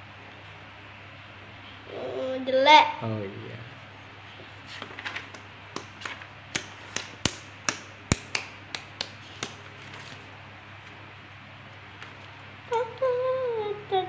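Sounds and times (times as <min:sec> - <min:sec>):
sharp taps: 0:05.7 - 0:09.6.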